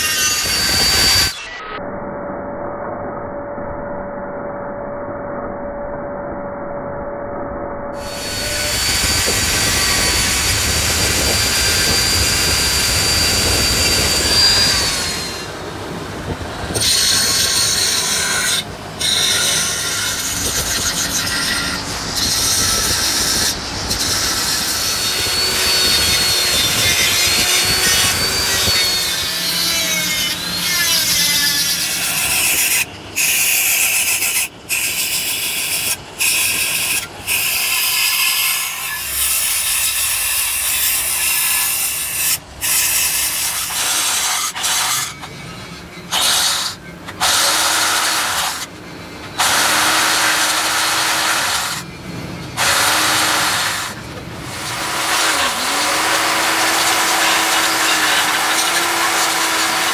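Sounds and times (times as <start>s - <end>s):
grinder grinding metal: 0.0s - 1.8s, 8.0s - 51.9s, 52.6s - 59.9s.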